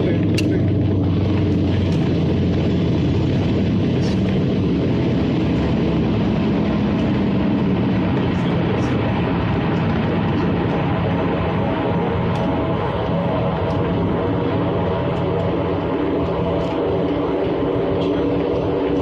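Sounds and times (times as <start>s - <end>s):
vehicle road and engine noise: 0.0s - 19.0s.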